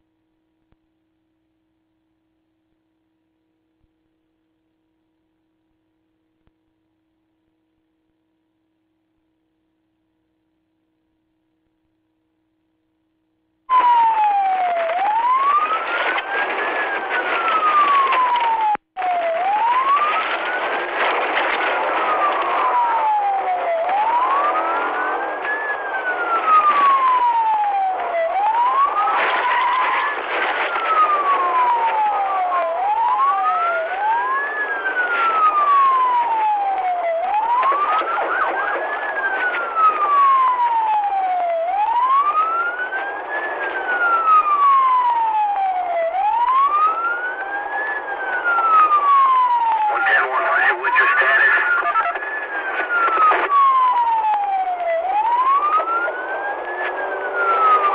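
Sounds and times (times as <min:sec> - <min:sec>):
police siren wailing: 0:13.7 - 0:57.9
car driving at speed: 0:22.0 - 0:27.4, 0:55.1 - 0:57.9.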